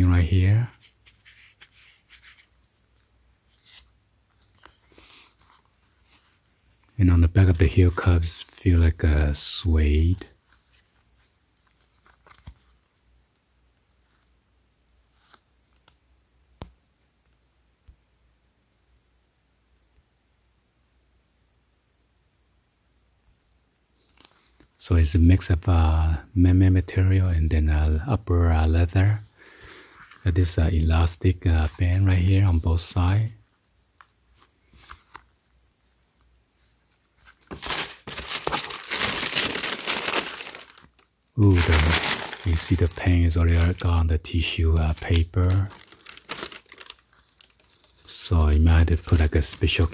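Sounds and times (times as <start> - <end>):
tissue paper rustling and crinkling: 32.8 - 49.9.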